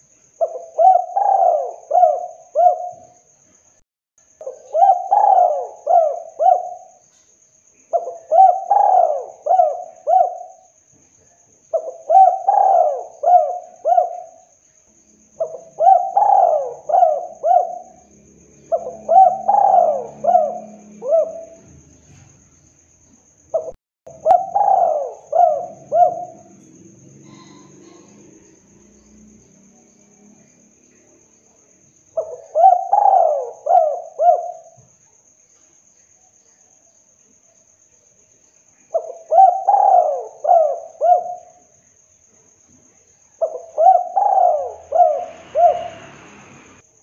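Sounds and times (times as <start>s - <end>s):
dove cooing: 0.0s - 3.1s, 4.4s - 7.0s, 7.9s - 10.7s, 11.7s - 14.4s, 15.4s - 22.2s, 23.5s - 29.0s, 32.2s - 34.8s, 38.9s - 41.6s, 43.4s - 46.3s.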